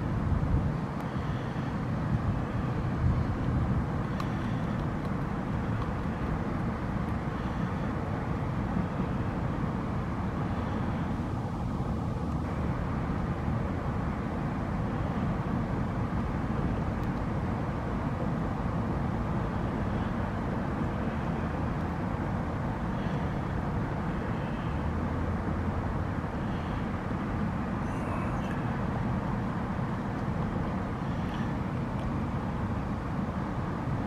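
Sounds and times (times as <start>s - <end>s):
distant road traffic rumble: 0.0s - 34.0s.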